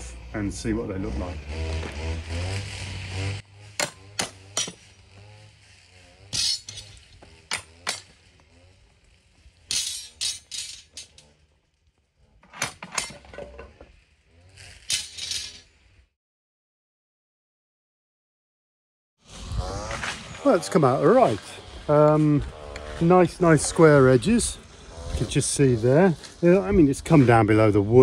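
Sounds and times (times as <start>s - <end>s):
metal clamps clinking and clanking: 3.8s - 4.8s, 6.3s - 8.1s, 9.7s - 11.4s, 12.4s - 13.9s, 14.8s - 15.7s.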